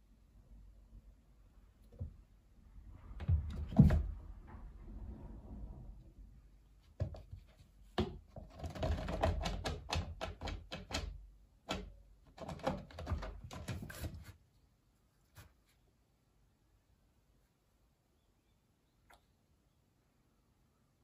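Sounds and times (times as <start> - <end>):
cat clawing scratching post: 6.9 - 14.4.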